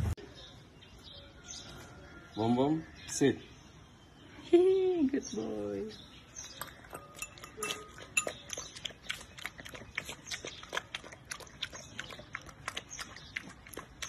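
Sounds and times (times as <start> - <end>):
puppy eating wet smacks: 6.4 - 14.0.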